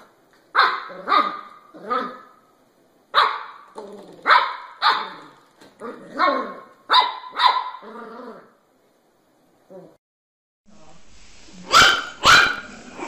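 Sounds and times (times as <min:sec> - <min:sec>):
puppy barking: 0:00.5 - 0:02.4, 0:03.1 - 0:05.4, 0:06.1 - 0:07.9, 0:11.6 - 0:13.0.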